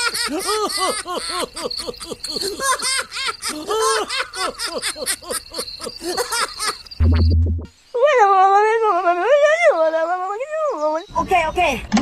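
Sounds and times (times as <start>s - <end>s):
high-pitched cartoon giggling: 0.0s - 6.9s.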